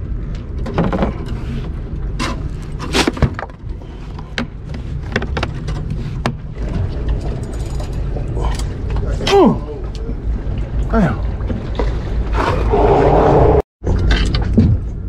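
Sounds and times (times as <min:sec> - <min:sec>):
plastic knocks and clacks: 0:04.3 - 0:06.4
low rumble: 0:05.7 - 0:15.0.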